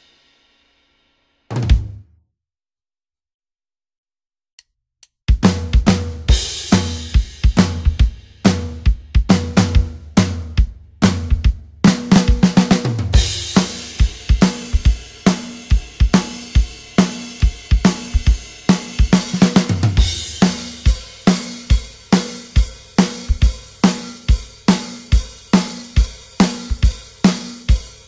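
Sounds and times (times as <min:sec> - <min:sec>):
drum-kit music: 0:01.5 - 0:02.2, 0:05.2 - 0:28.0.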